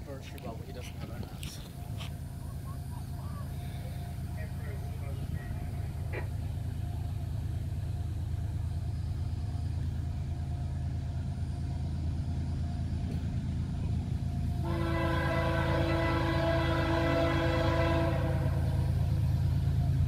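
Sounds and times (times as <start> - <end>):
diesel freight train rumble: 0.0 - 20.0
train air horn blast: 14.6 - 19.0.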